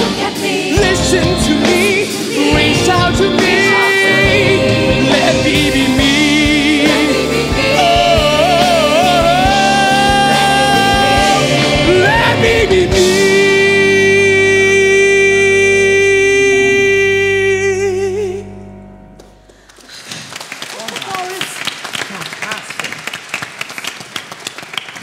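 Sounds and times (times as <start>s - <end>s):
band with drums: 0.0s - 14.4s
solo singer singing: 0.0s - 18.6s.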